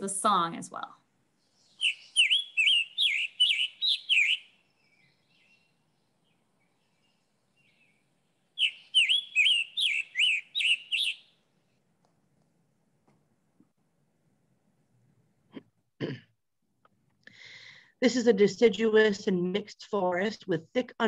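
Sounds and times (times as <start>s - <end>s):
bird singing hoarse phrases: 1.7s - 5.8s, 8.6s - 11.3s.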